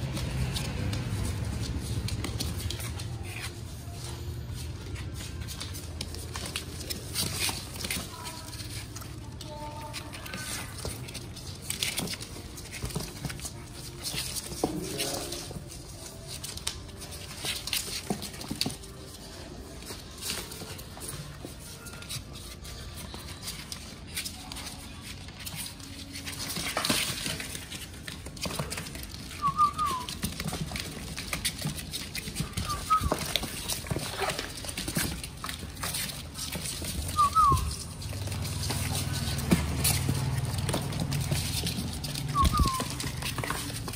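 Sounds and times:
claws scratching on cardboard: 0.0 - 43.9
puppies suckling clicks: 22.0 - 43.9
puppy squeaking: 29.2 - 30.1, 32.2 - 38.0, 40.8 - 43.9.

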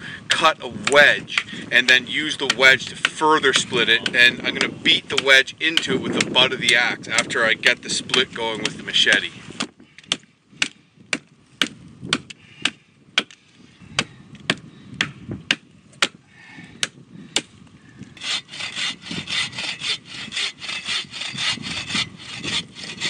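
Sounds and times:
hand saw cutting wood: 0.3 - 9.3, 18.2 - 23.0
machete chopping wood: 0.8 - 7.4, 8.1 - 13.4, 14.0 - 16.2.

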